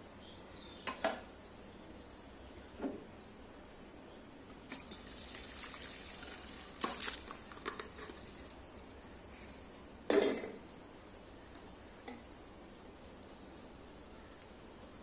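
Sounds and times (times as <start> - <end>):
curry pouring and splashing: 4.6 - 8.7.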